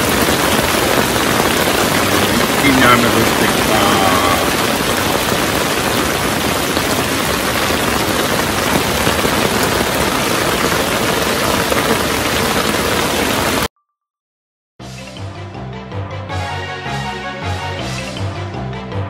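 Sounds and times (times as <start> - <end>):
heavy rain falling: 0.0 - 13.7.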